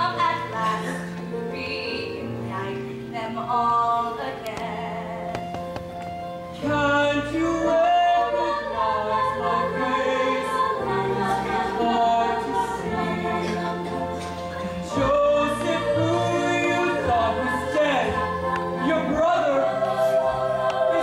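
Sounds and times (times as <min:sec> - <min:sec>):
piano accompaniment: 0:00.0 - 0:21.0
group of voices singing: 0:06.6 - 0:21.0.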